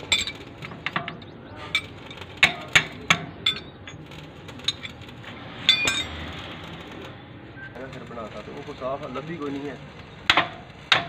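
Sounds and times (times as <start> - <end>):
metal wrenches clinking: 0.0 - 6.4.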